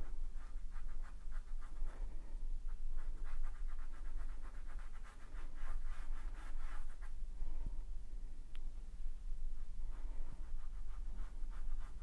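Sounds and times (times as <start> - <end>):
paintbrush scratching on fabric: 0.0 - 7.2, 9.6 - 12.0
steady low hum: 0.0 - 12.0.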